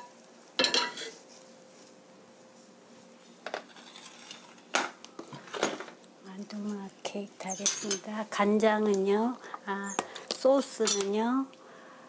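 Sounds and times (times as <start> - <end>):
kitchenware clattering: 0.0 - 1.2, 3.5 - 6.0, 7.5 - 8.1, 10.1 - 11.2
metal spoon clinking in ceramic dish: 7.6 - 8.0.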